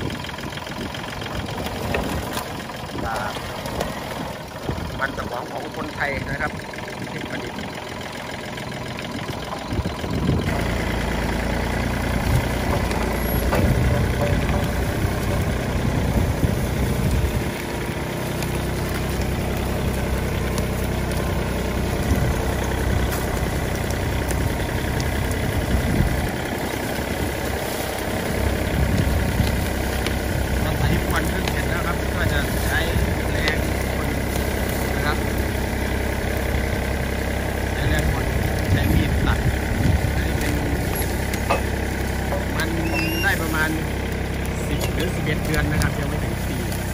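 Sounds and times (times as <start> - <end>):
tractor diesel engine under load: 0.0 - 46.9.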